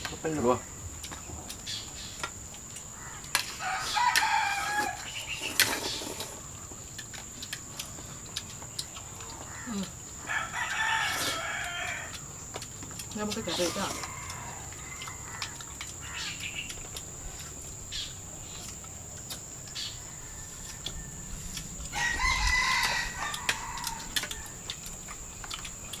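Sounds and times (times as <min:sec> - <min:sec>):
rooster crowing: 0:03.0 - 0:05.4, 0:09.5 - 0:12.3, 0:13.6 - 0:16.4, 0:19.8 - 0:24.8.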